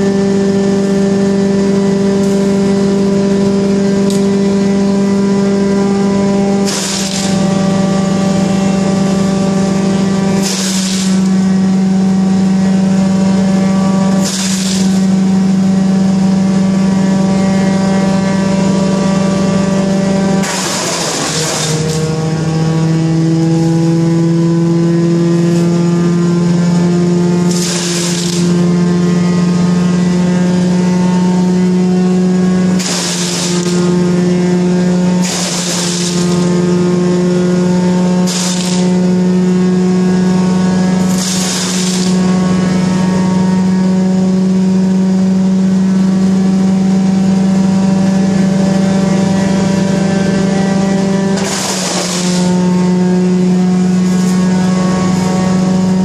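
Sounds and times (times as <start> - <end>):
wood chipper running: 0.0 - 56.0
brush being shredded: 10.4 - 11.3, 20.4 - 22.0, 35.2 - 36.4, 38.3 - 38.9, 41.1 - 42.2, 51.4 - 52.5.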